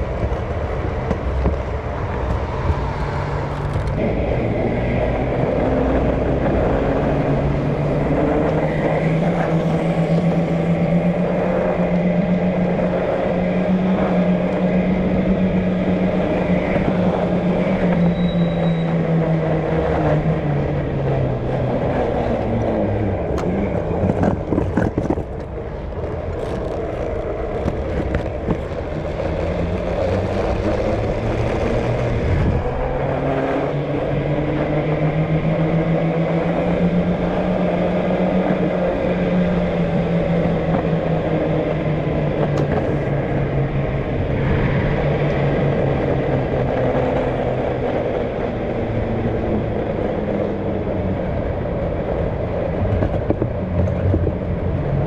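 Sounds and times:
car engine: 0:00.0 - 0:55.0
road noise: 0:00.0 - 0:55.0.

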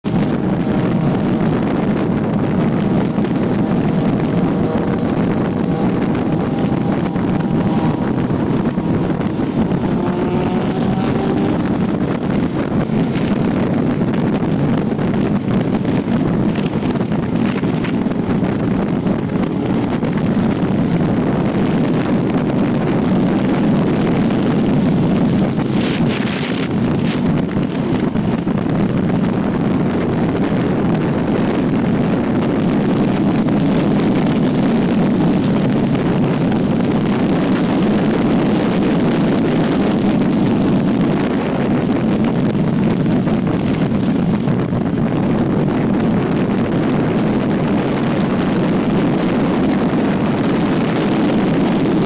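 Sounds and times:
motorcycle engine: 0:00.0 - 0:52.0
wind rushing over microphone: 0:00.0 - 0:52.0.

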